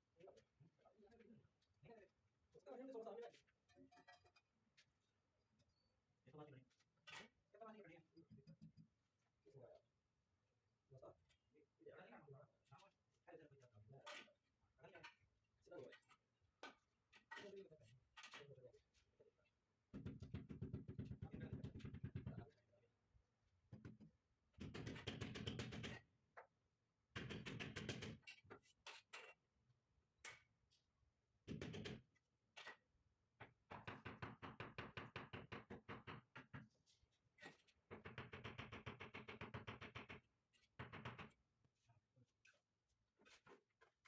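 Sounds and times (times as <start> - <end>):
rapid knocking on marble: 20.0 - 22.4, 23.8 - 26.0, 33.4 - 36.7, 37.9 - 41.4.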